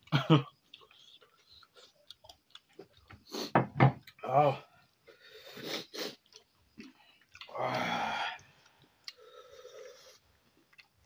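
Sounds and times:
soft breathing: 7.9 - 10.3.

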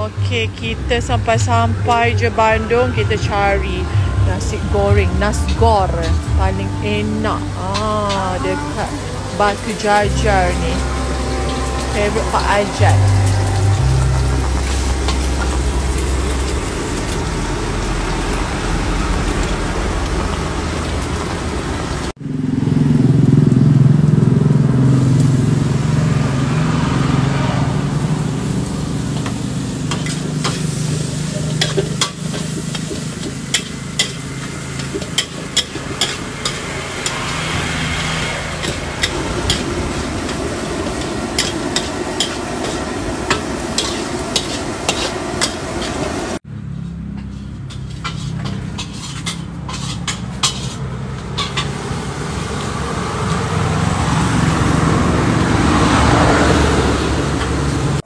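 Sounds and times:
steady low drone: 0.0 - 29.9
metal spatula scraping wok: 1.9 - 18.2, 28.2 - 52.8
food sizzling in a wok: 7.2 - 22.1, 24.7 - 46.4, 47.2 - 58.0
spatula clacking against wok: 29.9 - 37.2, 38.6 - 46.0, 47.2 - 51.8.

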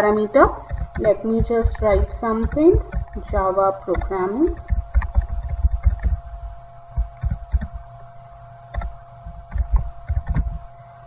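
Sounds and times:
faint electrical hum: 0.0 - 11.0
keyboard key taps: 0.7 - 3.2, 3.9 - 6.2.

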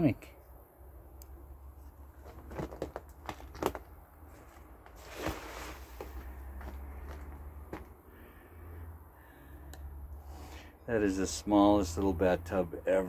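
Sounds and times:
footsteps on old floor: 2.2 - 8.0
short scraping rush: 4.9 - 6.8.

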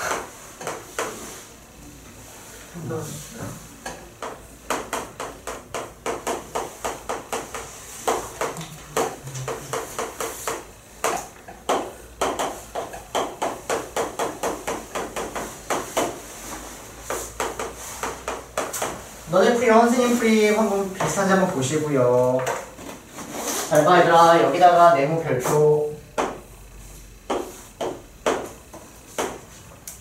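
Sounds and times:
chalk tapping on chalkboard: 0.0 - 1.5, 3.8 - 21.6, 26.2 - 26.5, 27.2 - 29.6.

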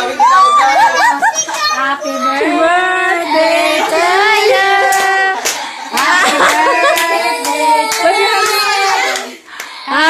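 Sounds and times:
group singing with children: 0.2 - 10.0
hand claps: 4.9 - 9.8.

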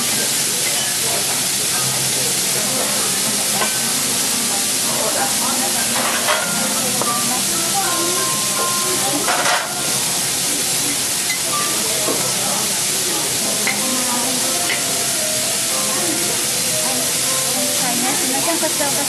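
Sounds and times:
steak sizzling on a griddle: 0.0 - 19.0
utensil clattering on griddle: 5.9 - 7.2, 9.2 - 9.9.

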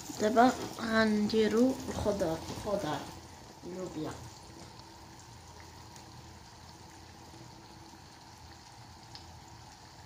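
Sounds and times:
faint hiss of food cooking: 0.0 - 10.0.

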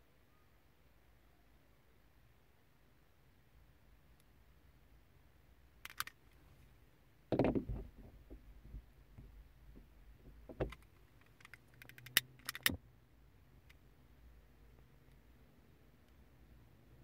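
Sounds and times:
knock and rustle: 7.3 - 10.8
hand tool clicks: 10.7 - 12.8.

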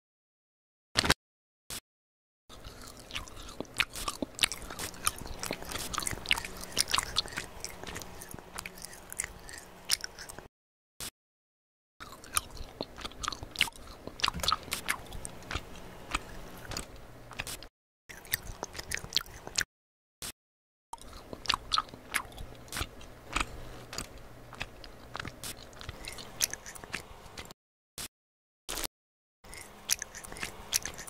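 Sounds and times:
chewing gummy candy: 2.5 - 10.5, 12.0 - 19.7, 21.0 - 27.6, 28.7 - 31.0.

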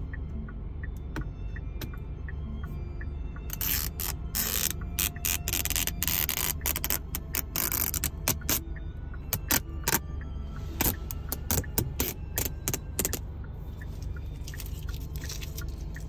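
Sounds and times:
plastic film peeling and crackling: 3.5 - 8.6, 14.5 - 16.0.

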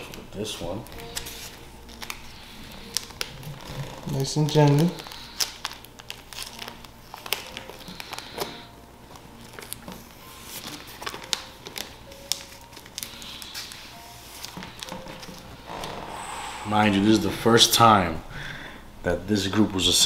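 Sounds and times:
plastic sleeve crinkling: 0.0 - 15.4.

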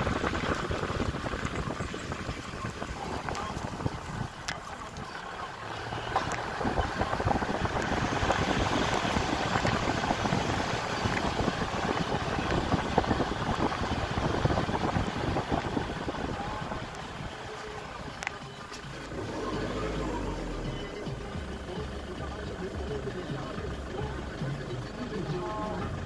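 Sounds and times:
wind buffeting microphone: 0.0 - 18.3
road noise: 0.0 - 26.0
vehicle engine: 0.0 - 26.0.

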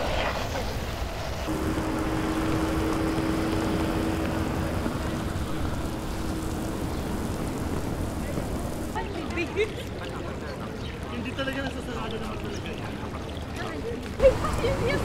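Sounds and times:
sprinkler water pattering on cobblestones: 0.0 - 15.0
steady tone: 1.5 - 9.0.

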